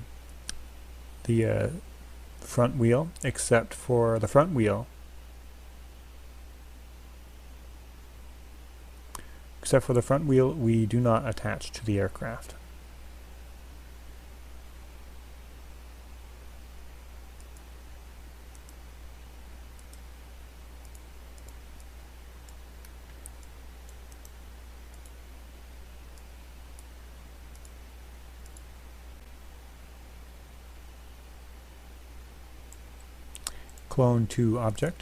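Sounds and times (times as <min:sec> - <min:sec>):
low hum and faint hiss: 0:00.0 - 0:35.0
computer mouse clicking: 0:17.4 - 0:17.7, 0:18.5 - 0:18.8, 0:19.7 - 0:20.1, 0:20.8 - 0:25.2, 0:27.5 - 0:27.8, 0:28.4 - 0:28.7, 0:32.7 - 0:33.9.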